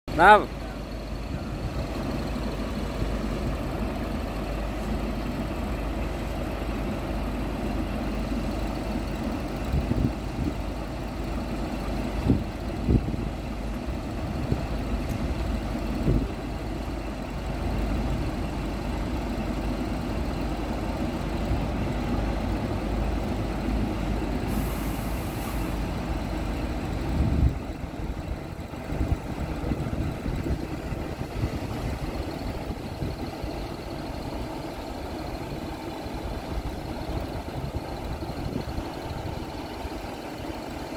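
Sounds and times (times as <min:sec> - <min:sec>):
diesel truck engine running: 0:00.1 - 0:40.9
brief hiss: 0:24.5 - 0:25.9.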